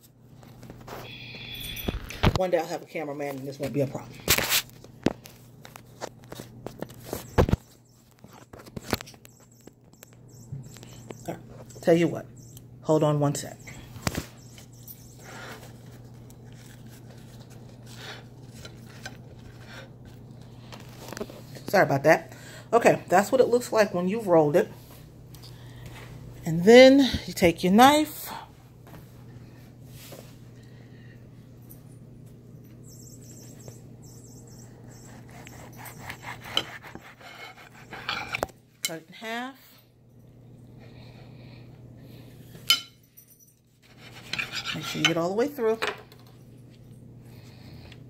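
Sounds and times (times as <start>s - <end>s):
steady low hum: 0.0s - 48.0s
knife sawing through a burrito: 34.9s - 38.4s, 43.8s - 45.0s.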